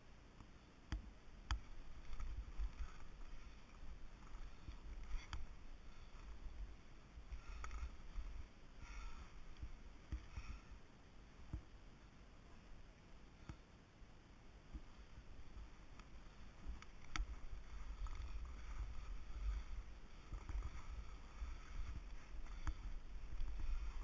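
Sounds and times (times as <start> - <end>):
wind rumble on microphone: 15.3 - 24.0
skis hissing through snow: 16.1 - 24.0.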